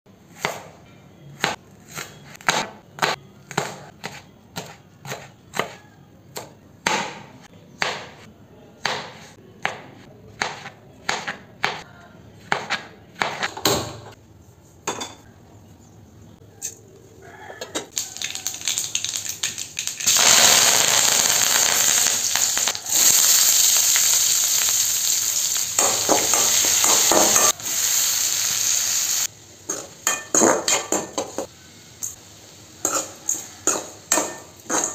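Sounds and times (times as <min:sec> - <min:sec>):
knife chopping on plastic board: 0:08.8 - 0:11.8
food sizzling in hot oil: 0:17.9 - 0:34.9.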